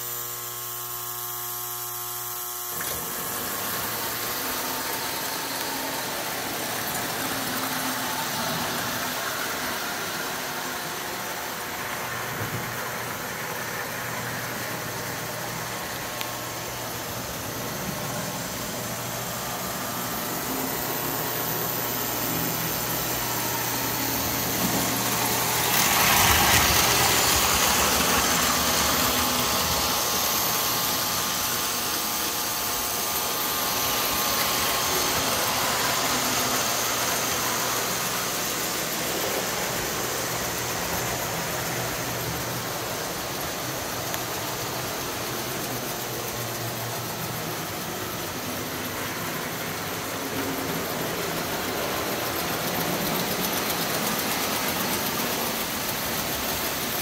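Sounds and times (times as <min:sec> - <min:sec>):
toy train motors and wheels rumbling: 0:00.0 - 0:57.0.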